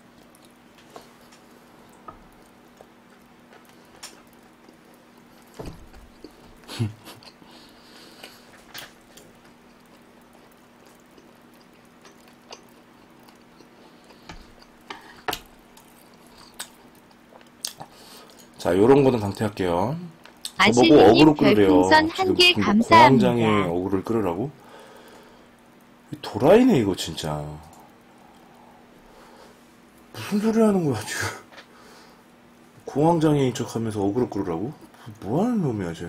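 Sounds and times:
faint steady hum: 0.0s - 36.0s
person chewing food: 0.2s - 18.6s.

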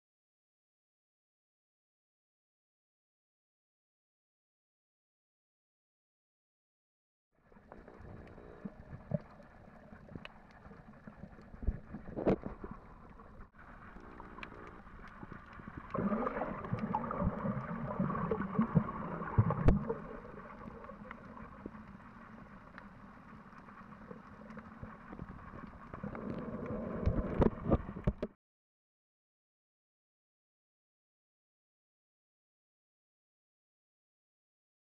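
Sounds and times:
muffled underwater rushing: 7.5s - 28.3s.

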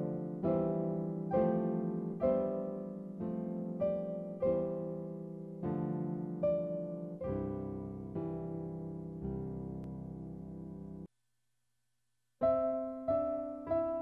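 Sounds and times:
gentle piano chords: 0.0s - 11.1s, 12.4s - 14.0s.

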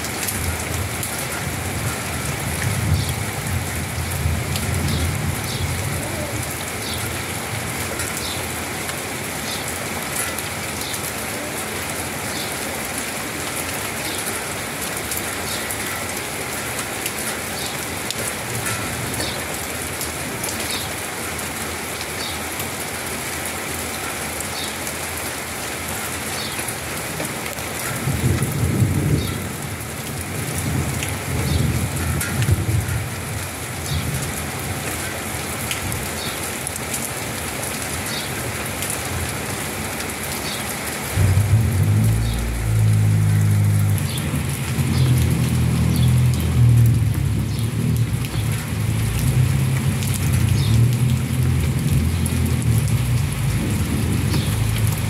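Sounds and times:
rain falling: 0.0s - 55.0s
low thunder rumbles: 28.0s - 29.8s, 41.1s - 55.0s.

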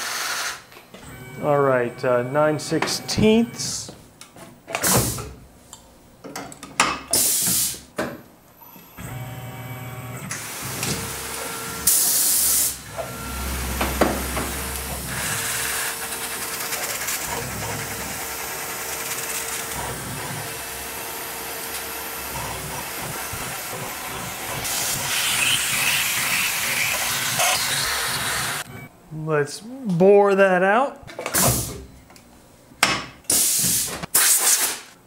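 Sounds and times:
hiss of coolant spray: 7.2s - 7.8s, 33.3s - 34.8s
mill drilling steel: 10.4s - 28.6s.

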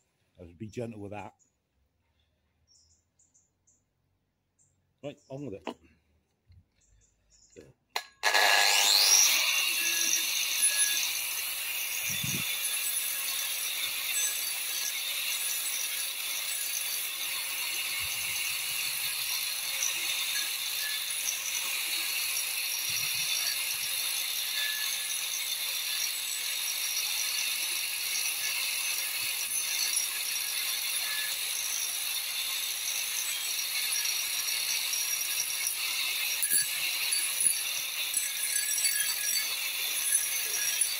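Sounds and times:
angle grinder whining on wood: 8.2s - 40.9s.

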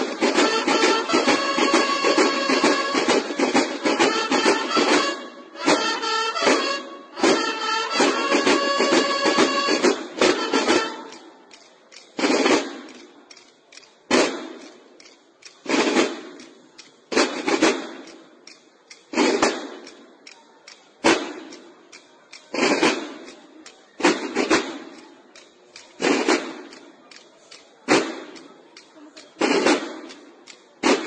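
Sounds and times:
snare drum hits: 0.0s - 11.3s, 12.2s - 13.1s, 14.1s - 14.8s, 15.6s - 16.5s, 17.1s - 18.2s, 19.1s - 20.0s, 21.0s - 21.7s, 22.5s - 23.3s, 24.0s - 25.0s, 25.8s - 26.8s, 27.9s - 28.5s, 29.4s - 30.2s, 30.8s - 31.0s.

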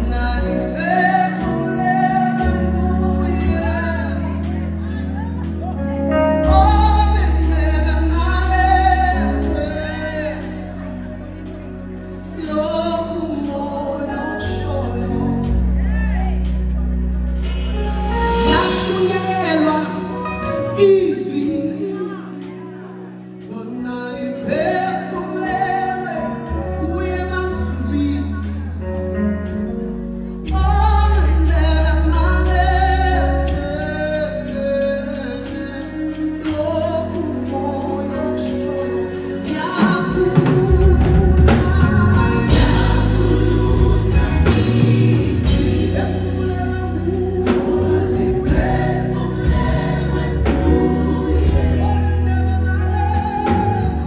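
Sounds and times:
gospel choir singing: 0.0s - 28.8s, 30.5s - 54.0s
instrumental accompaniment: 0.0s - 54.0s
steady beat: 38.5s - 54.0s.

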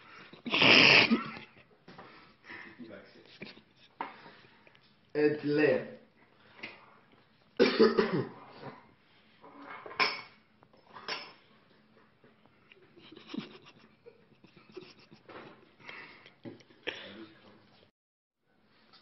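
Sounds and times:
faint kitchen clatter: 1.3s - 5.2s, 6.0s - 17.9s.

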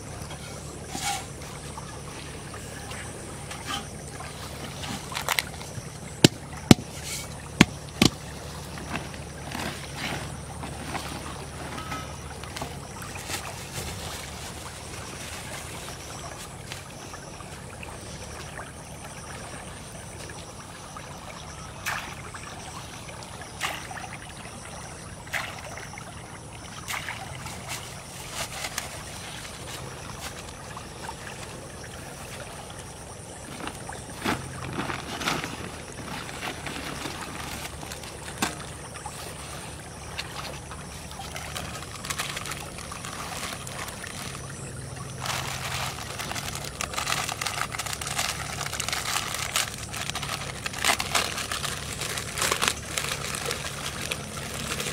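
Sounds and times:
low steady hum: 0.0s - 54.9s
water running in canal: 0.0s - 54.9s
handling knocks and rustles: 2.8s - 16.9s, 33.5s - 44.4s, 45.2s - 54.9s.

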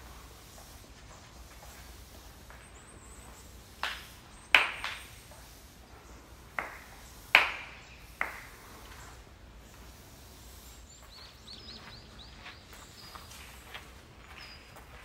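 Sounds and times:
sharp hand claps: 3.8s - 5.2s, 6.5s - 8.6s.

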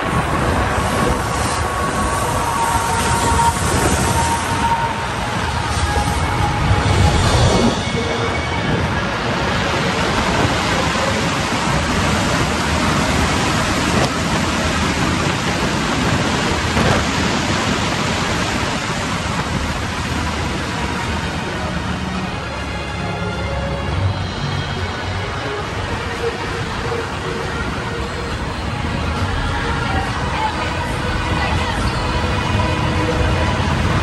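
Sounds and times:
wind rushing: 0.0s - 22.7s.

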